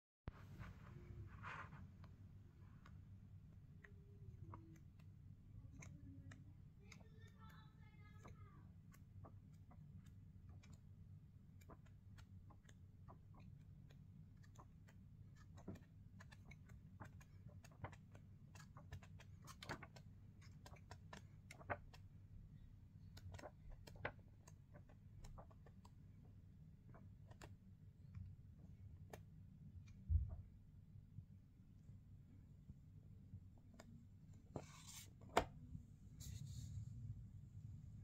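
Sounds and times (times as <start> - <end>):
low steady hum: 0.3 - 38.0
paper pages crinkling: 11.5 - 22.2, 23.0 - 26.0.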